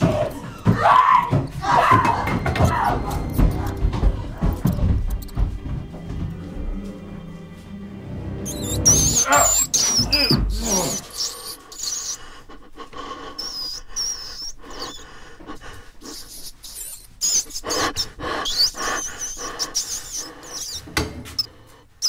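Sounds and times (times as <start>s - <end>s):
rats squeaking: 1.7s - 5.4s, 8.4s - 21.6s.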